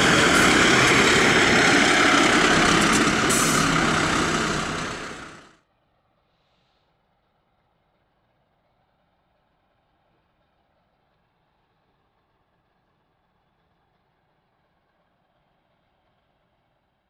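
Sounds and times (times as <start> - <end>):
fire engine diesel engine: 0.0 - 5.6.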